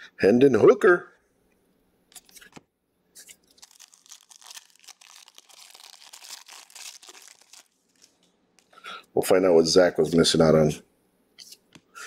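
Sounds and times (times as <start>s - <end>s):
foil wrapper tearing and crinkling: 3.2s - 8.7s.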